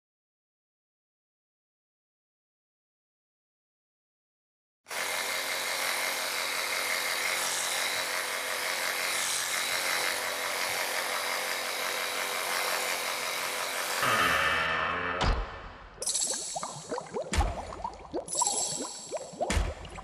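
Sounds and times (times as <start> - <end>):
pitched sound: 14.0 - 20.0.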